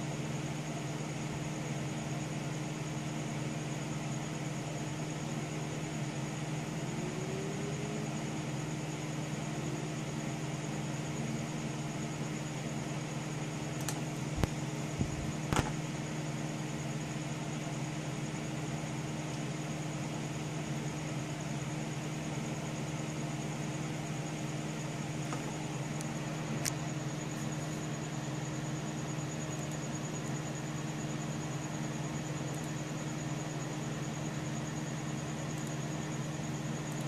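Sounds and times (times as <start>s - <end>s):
computer fan humming: 0.0s - 37.0s.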